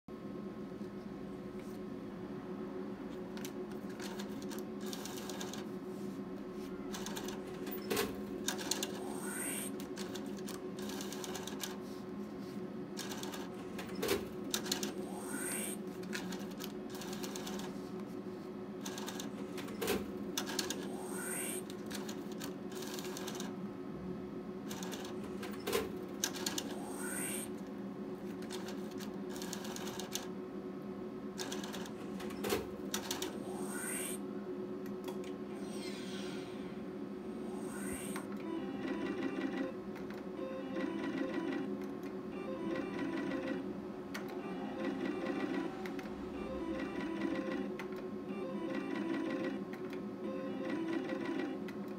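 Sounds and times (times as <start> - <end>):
electrical hum: 0.1 - 51.9
motorised whir with rising chirps: 6.7 - 10.2, 13.0 - 17.7, 18.8 - 23.5, 24.7 - 27.7, 31.4 - 34.3, 35.3 - 51.7.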